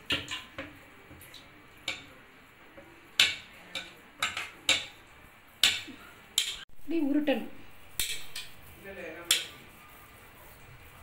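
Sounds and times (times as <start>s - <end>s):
hands tapping on a plate: 2.8s - 5.0s, 5.6s - 6.6s.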